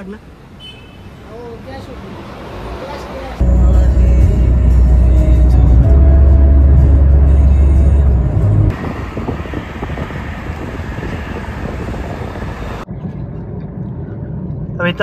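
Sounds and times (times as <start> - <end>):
highway road noise: 0.0 - 15.0
bass-heavy music: 3.4 - 8.7
in-cabin rumble: 3.4 - 15.0.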